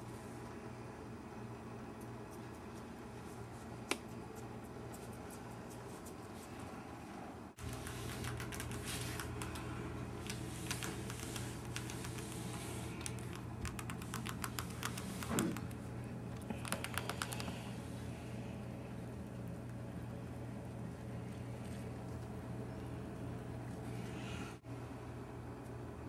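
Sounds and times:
steady low hum: 0.0 - 26.0
rat clicking and scratching: 7.6 - 17.6.

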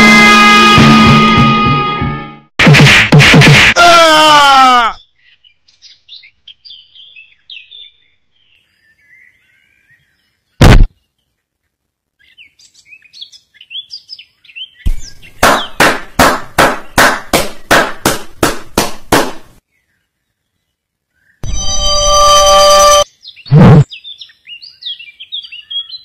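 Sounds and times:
loud impact: 0.0 - 3.8, 10.6 - 10.9
rapid loud hits: 0.0 - 3.8, 10.6 - 10.9, 14.9 - 19.4.

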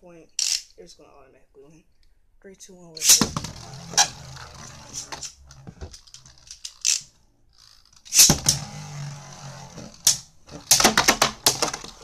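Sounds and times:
spinning tops whirring: 3.0 - 12.0
spinning tops clashing: 6.0 - 7.1, 8.1 - 8.7.

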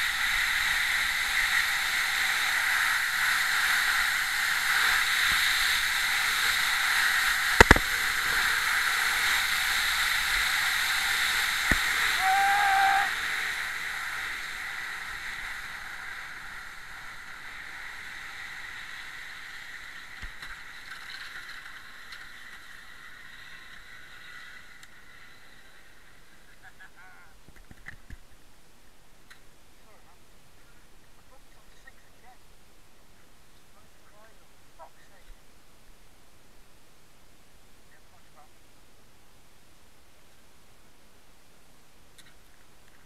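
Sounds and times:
bobsleigh runners hissing over ice: 0.0 - 26.4.

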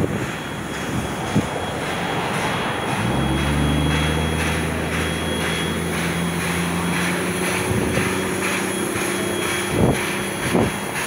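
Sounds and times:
steady drone: 0.0 - 11.0
steam locomotive exhaust beats: 0.0 - 11.0.

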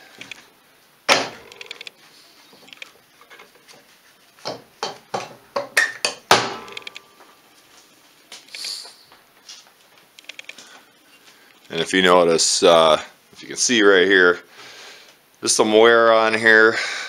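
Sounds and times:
metal knocks and clicks: 4.4 - 7.0.

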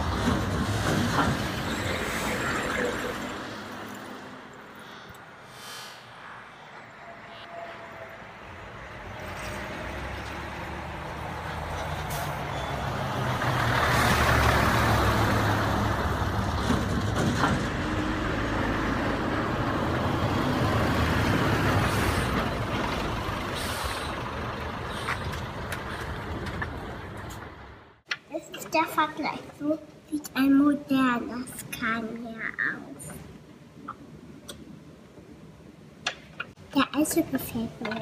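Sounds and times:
heavy truck engine running: 10.8 - 28.0.

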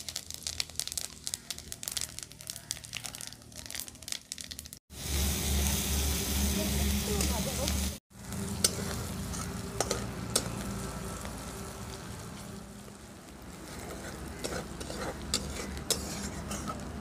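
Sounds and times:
onion sizzling in hot oil: 0.0 - 17.0
metal spatula scraping a pan: 8.6 - 10.5, 13.5 - 17.0.

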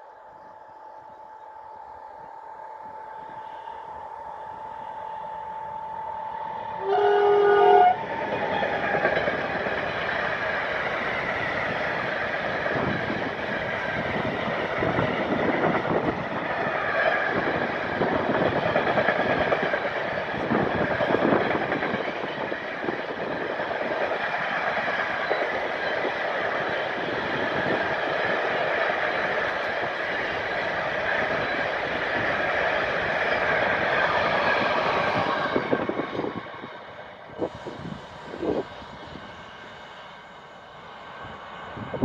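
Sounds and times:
electric locomotive whine: 0.0 - 42.0
train horn blast: 3.2 - 8.1.

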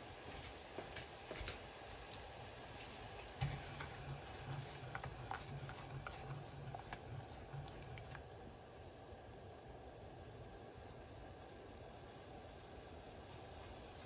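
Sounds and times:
sauce popping and crackling: 3.1 - 8.4
spatula stirring sauce in pot: 3.2 - 8.4.

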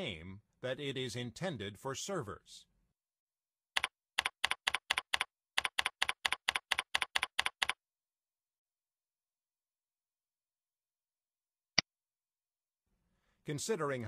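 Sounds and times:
keyboard typing clicks: 3.8 - 7.8.

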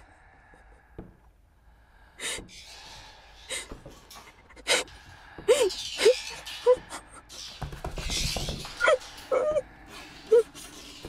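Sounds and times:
person breathing heavily: 0.0 - 7.4.

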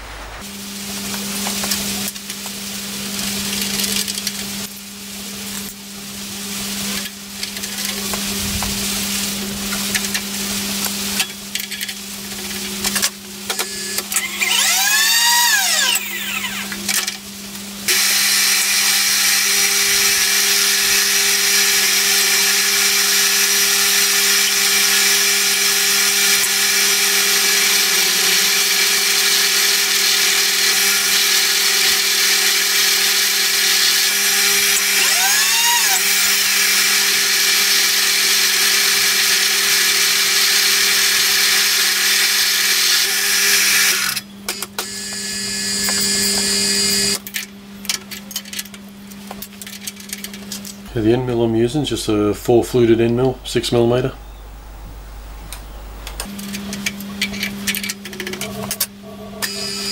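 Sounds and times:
machine hum: 0.0 - 42.1, 43.0 - 59.9
drill bit cutting steel: 13.5 - 16.8, 17.9 - 47.2, 59.4 - 59.9.

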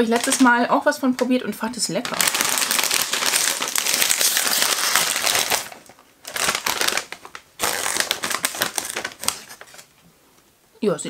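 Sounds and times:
snack bag crinkling: 0.0 - 0.5, 2.0 - 9.9.

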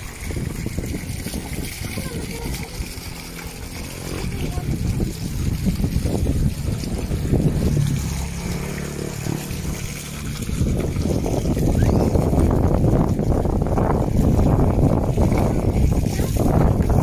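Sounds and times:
water pouring into containers: 0.0 - 17.0
wind rumble on microphone: 0.0 - 17.0.

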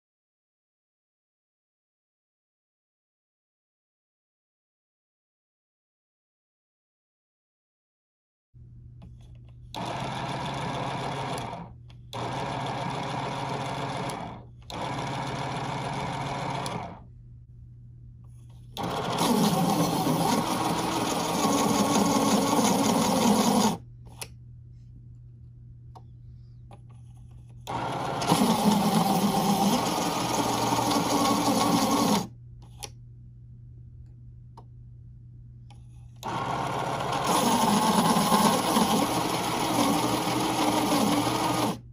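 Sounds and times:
low steady hum: 8.6 - 9.8, 13.4 - 22.6, 23.8 - 28.8, 32.1 - 36.3
electric pencil sharpener motor: 9.7 - 17.0, 18.8 - 23.8, 27.7 - 32.3, 36.2 - 41.9.

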